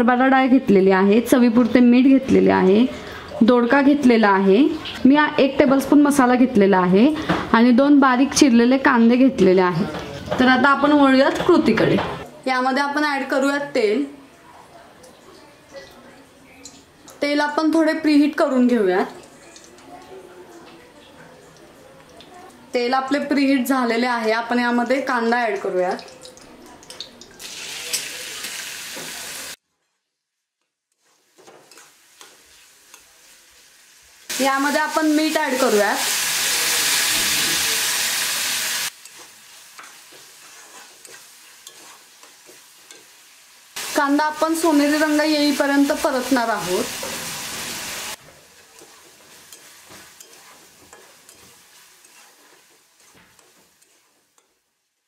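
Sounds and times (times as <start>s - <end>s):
onions sizzling in hot oil: 0.0s - 14.4s, 21.3s - 29.6s, 30.9s - 55.0s
spatula scraping pan: 30.9s - 33.5s, 38.9s - 43.2s, 46.7s - 54.7s.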